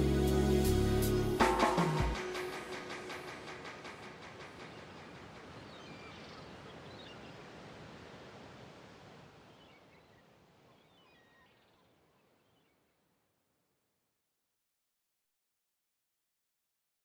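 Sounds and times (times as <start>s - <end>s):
steady outdoor noise: 0.0s - 12.4s
faint bird chirps: 9.4s - 13.0s.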